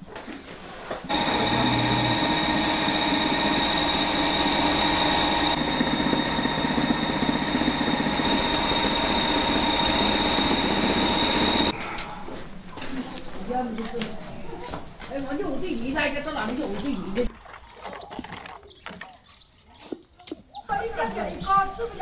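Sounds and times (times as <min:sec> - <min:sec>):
electric rice mill grinding: 0:01.1 - 0:11.7
high whine: 0:01.1 - 0:11.7.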